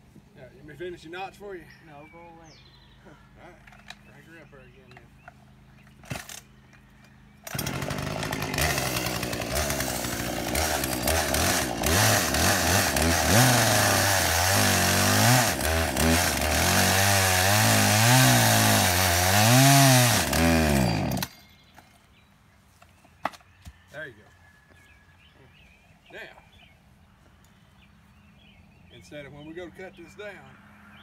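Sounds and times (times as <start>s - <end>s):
chainsaw cutting tree trunk: 7.4s - 21.4s.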